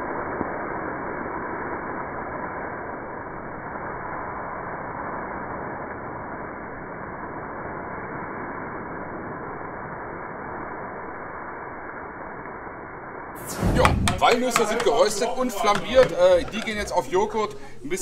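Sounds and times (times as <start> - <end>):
flames rushing: 13.4 - 17.8.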